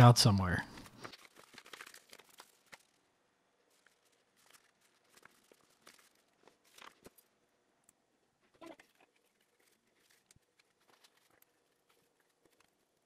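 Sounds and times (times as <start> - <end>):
paper rustling and clicking: 0.7 - 3.0, 3.6 - 7.3, 8.7 - 13.0.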